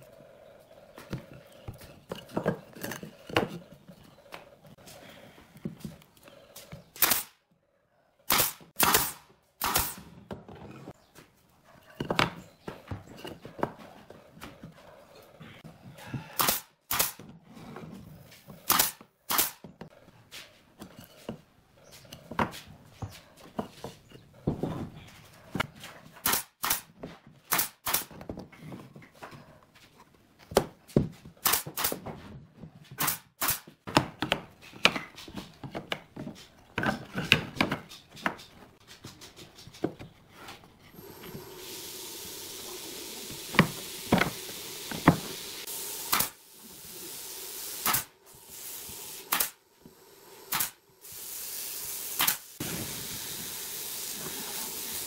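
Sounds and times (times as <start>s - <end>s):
sharp cracks: 7.0s - 7.4s, 8.3s - 10.0s
steady hiss: 41.0s - 55.0s.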